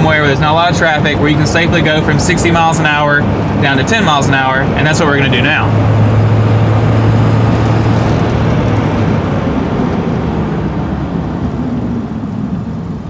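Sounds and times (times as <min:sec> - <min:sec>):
low engine drone: 0:00.0 - 0:13.0
road and wind noise: 0:00.0 - 0:13.0.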